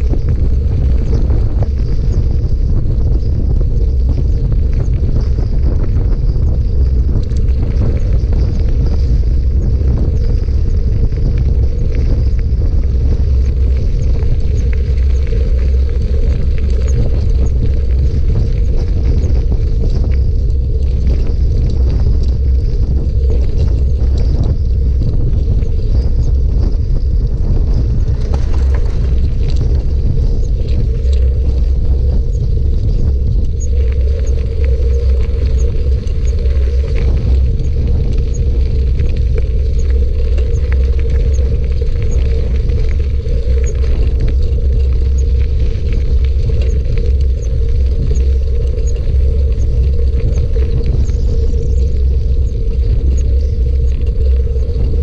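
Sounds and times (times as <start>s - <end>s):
small ticks and rattles: 0.0s - 55.0s
tyres crackling over gravel: 0.0s - 55.0s
wind buffeting microphone: 0.0s - 55.0s.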